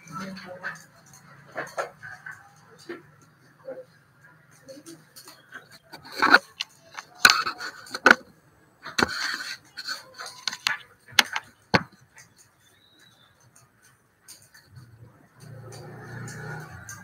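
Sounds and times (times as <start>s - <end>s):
rubbing and scraping on phone: 5.5s - 12.0s.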